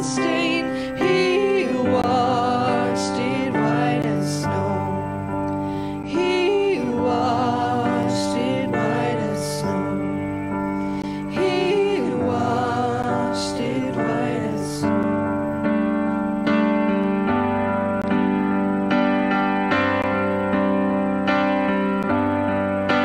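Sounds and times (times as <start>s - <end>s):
group of voices singing: 0.0s - 5.2s, 6.0s - 15.2s
electric keyboard hymn: 0.0s - 23.0s.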